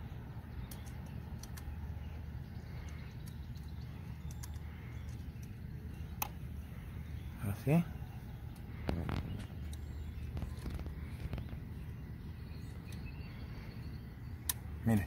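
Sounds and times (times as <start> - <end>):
low outdoor background rumble: 0.0 - 15.0
faint small clicks: 0.6 - 1.8, 2.7 - 6.4.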